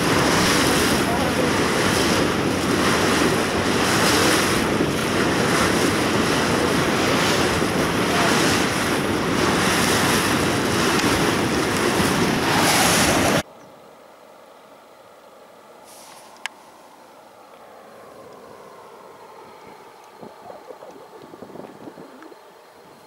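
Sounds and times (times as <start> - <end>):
waves washing on river: 0.0 - 13.4
wind buffeting microphone: 0.0 - 13.4, 18.1 - 23.0.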